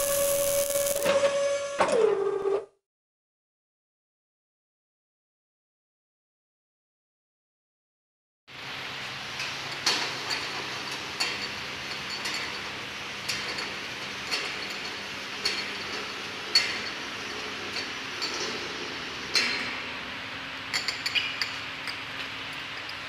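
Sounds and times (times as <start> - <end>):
steady machine noise: 0.0 - 1.1.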